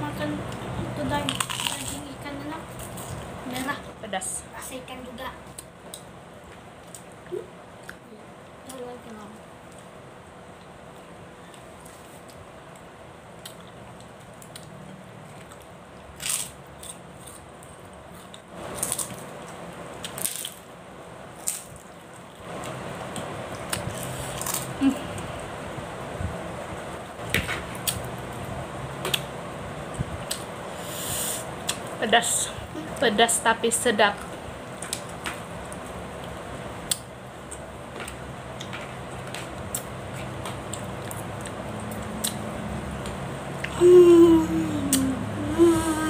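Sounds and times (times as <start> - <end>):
low background hum: 0.0 - 46.0
person chewing and lip smacking: 39.7 - 43.8.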